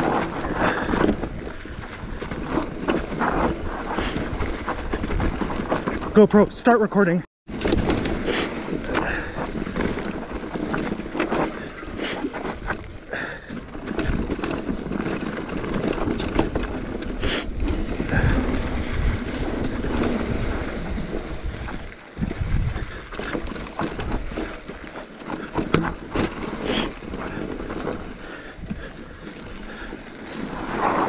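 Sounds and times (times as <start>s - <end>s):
wind rumbling on microphone: 0.0s - 6.2s, 7.5s - 31.0s
tyres crunching over stones: 7.5s - 31.0s.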